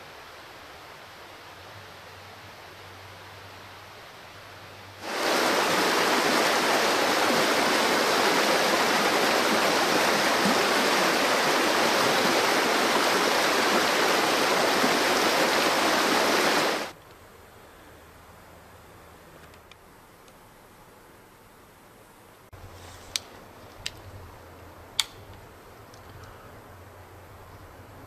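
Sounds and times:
water rushing over stones: 5.0 - 17.0.

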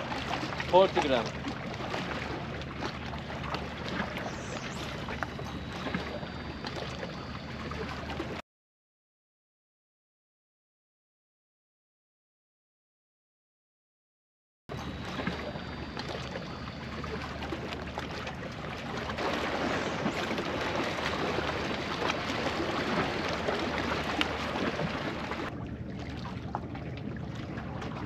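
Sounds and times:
sea water washing among rocks: 0.0 - 6.1, 17.0 - 28.0.

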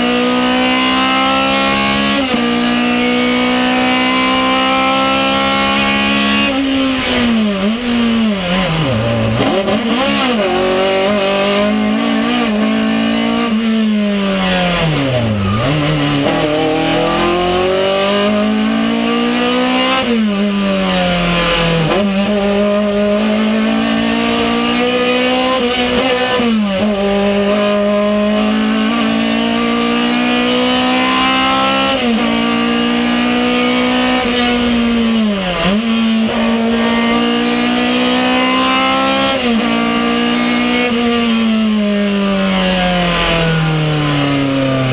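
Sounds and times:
race car engine at high revs: 0.0 - 44.9.

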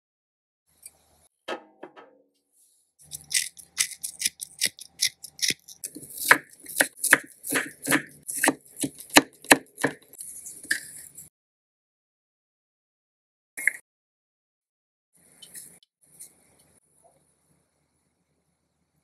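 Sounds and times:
knife cutting ginger: 3.0 - 10.9
knife chopping on wooden board: 3.1 - 10.2.

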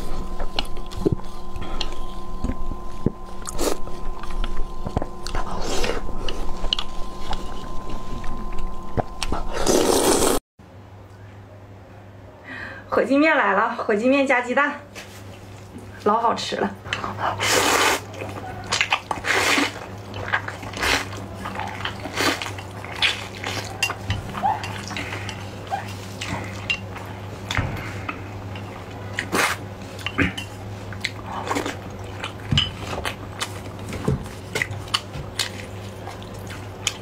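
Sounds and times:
low steady hum: 0.0 - 37.0
slurping and chewing noodles: 3.3 - 10.4, 16.9 - 37.0.

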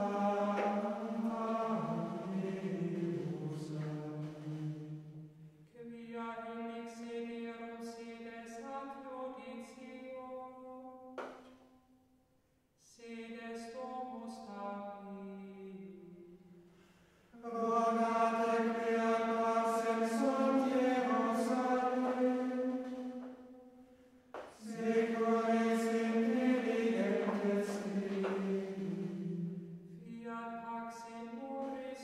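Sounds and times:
slow solemn singing: 0.0 - 5.4, 17.3 - 32.0.

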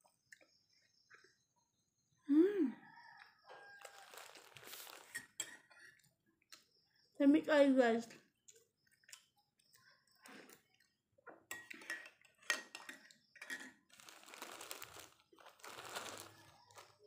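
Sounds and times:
soft chewing: 2.8 - 7.0, 8.1 - 11.5
plastic bag crinkling: 3.8 - 5.2, 13.9 - 17.0
spoon clinking in a mug: 5.1 - 6.0, 11.5 - 13.8.

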